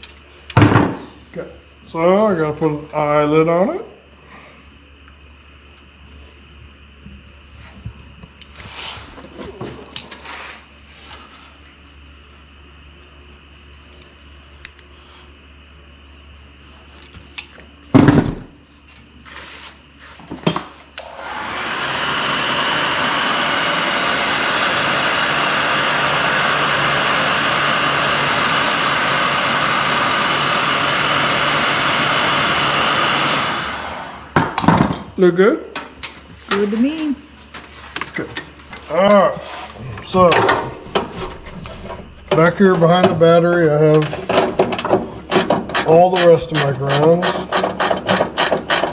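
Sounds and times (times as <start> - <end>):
heat gun blowing: 21.0 - 34.4.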